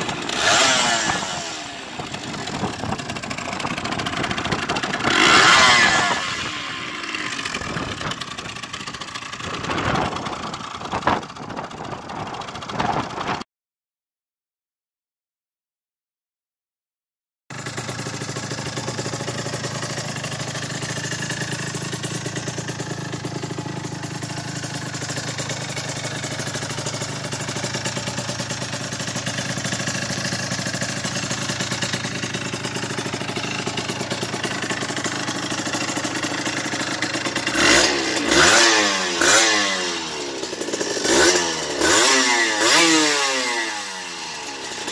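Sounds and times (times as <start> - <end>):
motorcycle engine idling: 0.0 - 13.4, 17.5 - 44.9.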